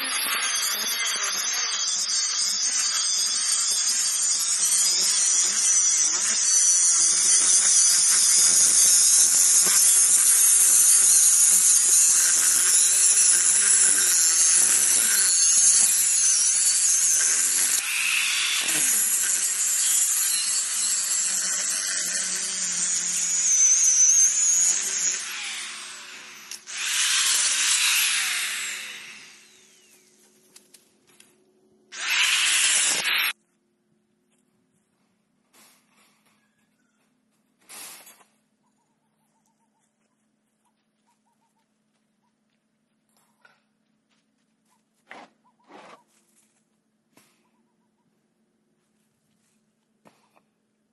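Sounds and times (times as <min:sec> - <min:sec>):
angle grinder cutting metal: 0:00.0 - 0:30.2, 0:31.9 - 0:33.4.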